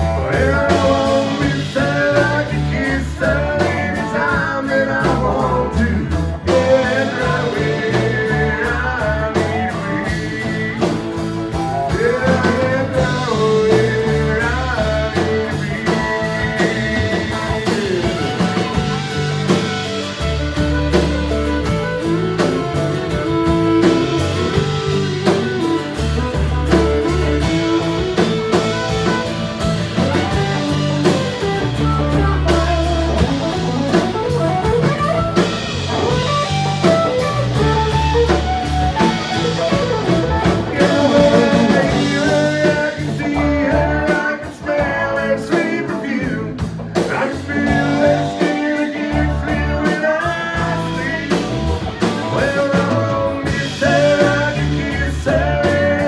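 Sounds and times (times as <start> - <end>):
people singing: 0.0 - 20.0, 40.4 - 56.0
acoustic guitar: 0.0 - 56.0
drums: 0.0 - 56.0
electric guitar: 0.0 - 56.0
fiddle: 17.4 - 41.9.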